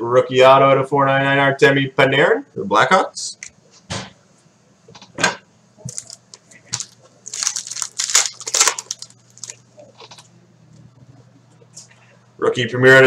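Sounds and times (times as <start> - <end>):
wrapper crinkling: 5.8 - 10.2.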